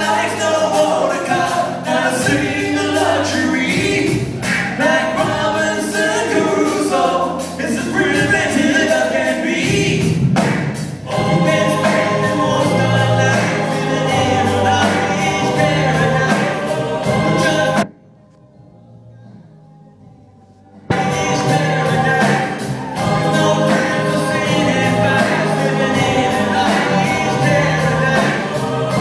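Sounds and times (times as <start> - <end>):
lead vocal singing: 0.0 - 17.9, 20.8 - 29.0
gospel-style backing vocals: 0.0 - 18.0, 20.1 - 29.0
bass line: 19.6 - 29.0
steady beat: 20.9 - 29.0.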